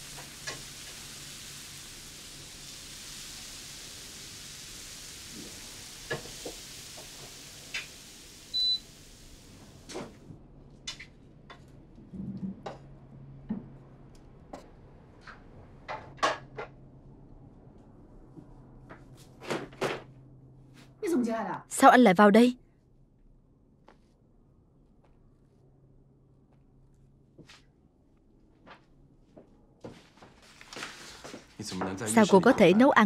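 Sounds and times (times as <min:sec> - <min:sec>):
steady hiss: 0:00.0 - 0:10.0.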